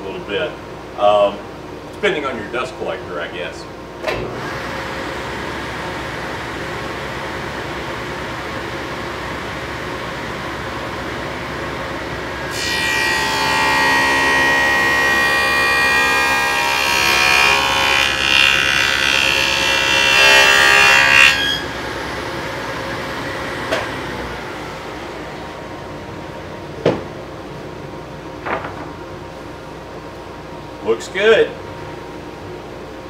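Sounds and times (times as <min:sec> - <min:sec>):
table saw running: 0:09.0 - 0:25.6
saw cutting wood: 0:12.5 - 0:25.0.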